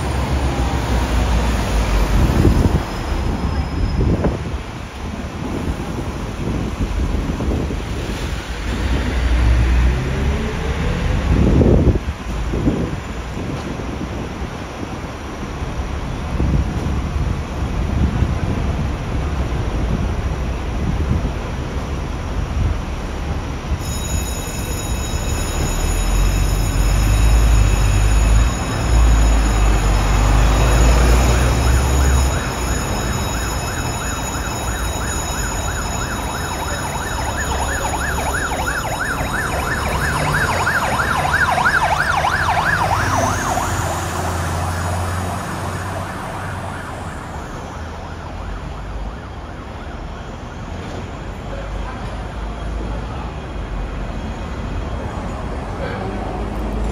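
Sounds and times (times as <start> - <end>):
high-pitched ringing tone: 23.8 - 48.6
siren yelping: 29.3 - 50.1.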